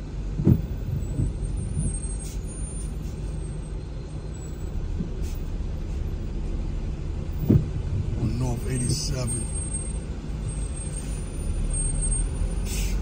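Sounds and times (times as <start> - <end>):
car cabin low rumble: 0.0 - 11.7.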